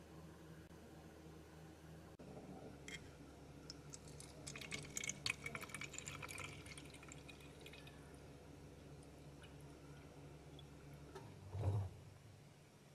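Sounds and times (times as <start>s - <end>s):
water trickling into bottle: 3.6s - 8.0s.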